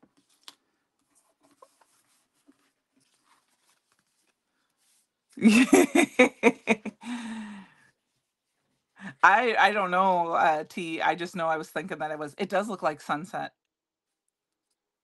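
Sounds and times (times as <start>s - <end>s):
faint paper clicks: 0.0s - 4.9s, 14.2s - 14.9s
woman laughing: 5.4s - 7.6s.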